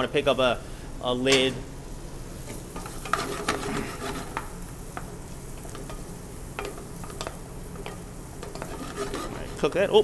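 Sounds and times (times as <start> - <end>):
squash sizzling in butter: 1.7 - 10.0
utensil clicking and scraping pan: 2.5 - 10.0.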